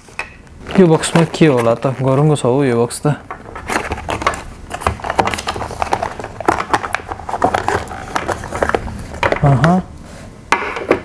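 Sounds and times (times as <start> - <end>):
cardboard box rustling: 0.6 - 2.5, 3.4 - 9.2.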